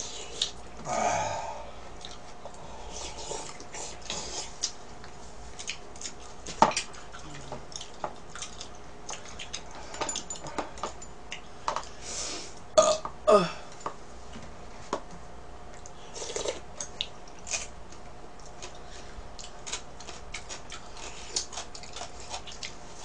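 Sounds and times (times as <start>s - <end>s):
chewing and mouth smacking: 2.0s - 2.6s, 3.4s - 10.5s, 15.7s - 22.8s.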